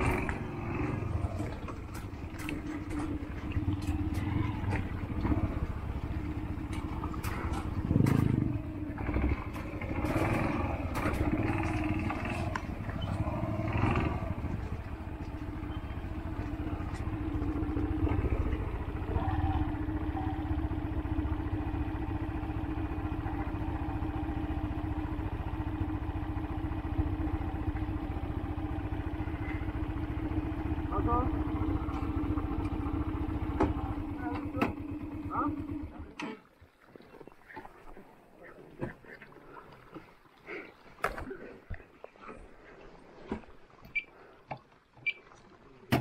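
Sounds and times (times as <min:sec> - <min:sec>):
motorcycle engine running: 0:00.0 - 0:36.2
engine knocks and rattles: 0:00.0 - 0:36.3.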